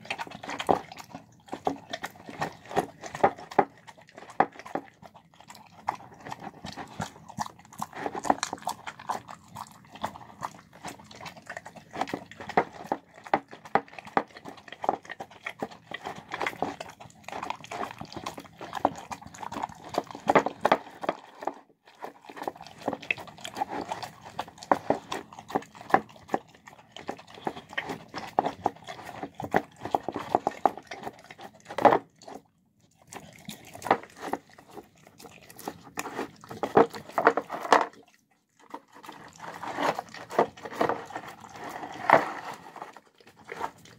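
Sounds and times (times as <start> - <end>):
dog chewing wetly: 0.0 - 43.9.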